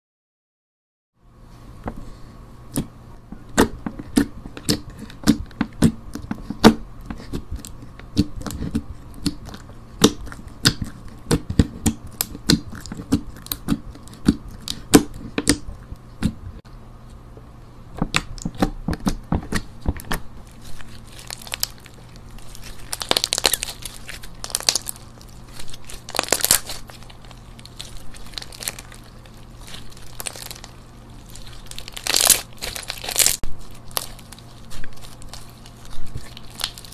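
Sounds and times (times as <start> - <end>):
slime crackling as stretched: 20.4 - 36.9.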